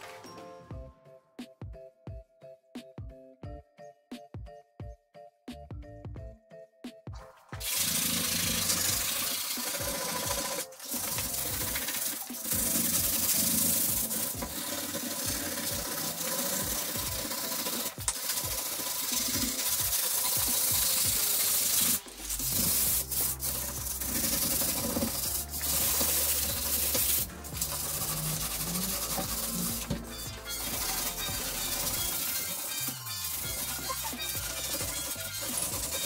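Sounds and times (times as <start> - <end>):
sandpaper rubbing on countertop: 7.6 - 36.0.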